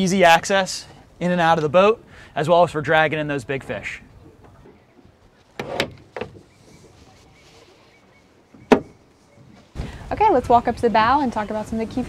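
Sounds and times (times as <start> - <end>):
knocks on boat door: 8.6 - 9.0.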